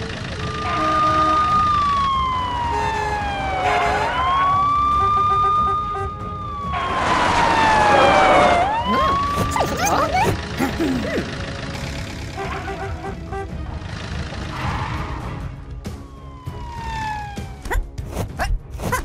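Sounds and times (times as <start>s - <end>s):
police siren wailing: 0.0s - 10.4s, 15.9s - 17.7s.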